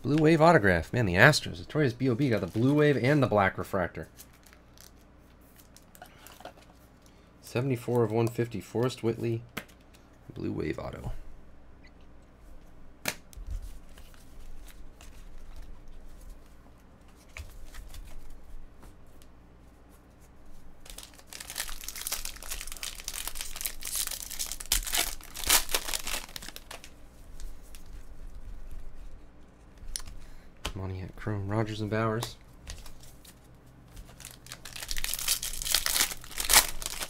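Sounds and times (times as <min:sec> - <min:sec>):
wrapper tearing and crinkling: 0:04.2 - 0:05.0, 0:20.8 - 0:26.9, 0:34.0 - 0:37.0.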